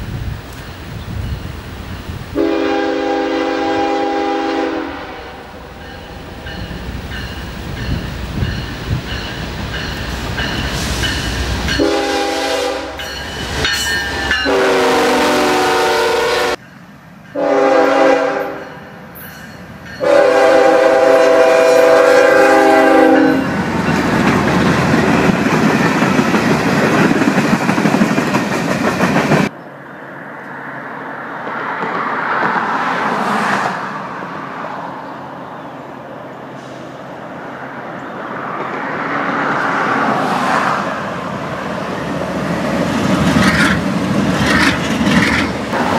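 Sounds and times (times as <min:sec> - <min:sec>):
freight train rumbling past: 0:00.0 - 0:45.9
locomotive horn blasts: 0:02.4 - 0:05.6, 0:11.7 - 0:13.0, 0:14.4 - 0:16.6, 0:17.4 - 0:18.8, 0:20.0 - 0:23.6.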